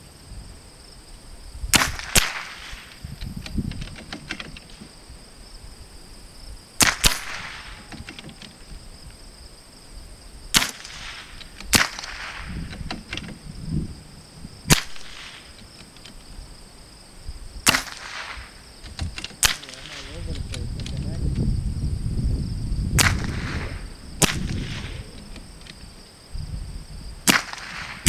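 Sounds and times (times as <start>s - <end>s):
rifle shots cracking: 1.7s - 2.9s, 6.8s - 7.9s, 10.5s - 12.6s, 14.7s - 15.6s, 17.6s - 18.6s, 19.3s - 20.4s, 23.0s - 25.4s, 27.2s - 28.0s.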